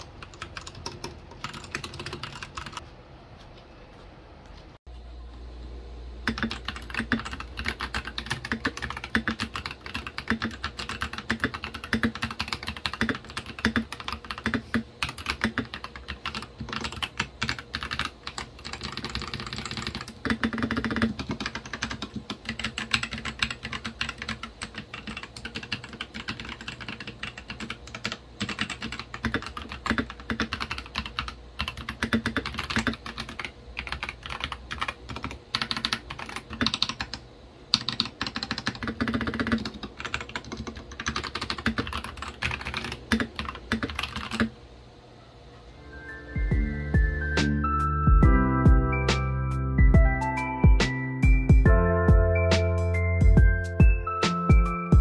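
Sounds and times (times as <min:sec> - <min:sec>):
mechanical keyboard typing: 0:00.0 - 0:02.8, 0:06.2 - 0:44.5.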